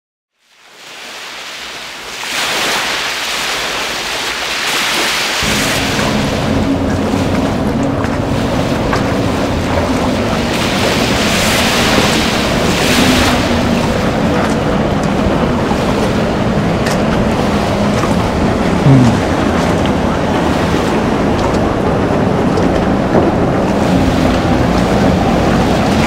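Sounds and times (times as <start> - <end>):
water rushing around hull: 0.3 - 26.0
boat engine running: 5.4 - 26.0.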